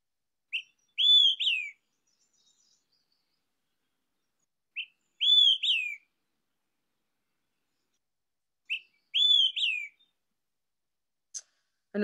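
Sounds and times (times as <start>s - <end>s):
bird whistling song: 0.5s - 3.4s, 4.7s - 6.1s, 8.7s - 10.2s.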